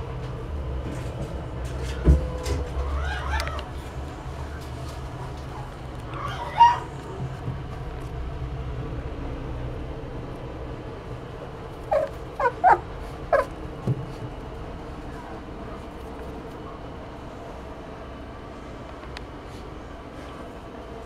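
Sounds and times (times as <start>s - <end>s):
low steady hum: 0.0s - 21.0s
puppy whining: 2.8s - 3.7s, 6.1s - 7.0s, 11.8s - 13.6s
puppy yipping: 6.1s - 7.0s, 11.9s - 13.5s.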